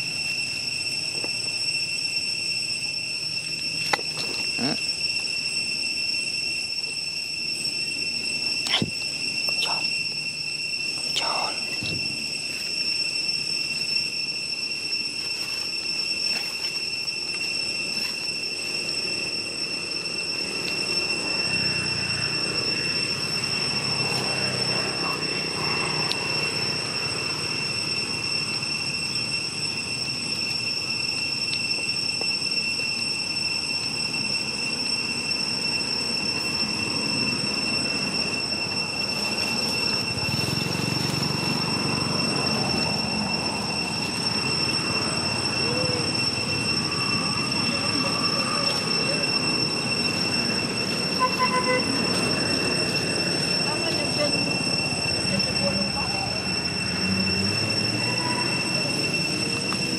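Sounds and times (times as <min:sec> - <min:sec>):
insects droning: 0:00.0 - 0:59.9
faint voices: 0:08.7 - 0:10.0, 0:11.0 - 0:12.2.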